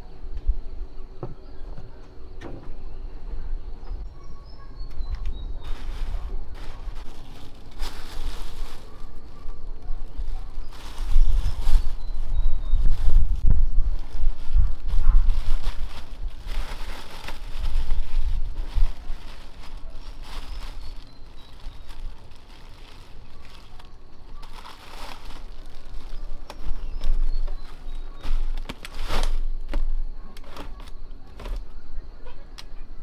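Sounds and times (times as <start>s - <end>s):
plastic bag rustling: 5.4s - 31.6s.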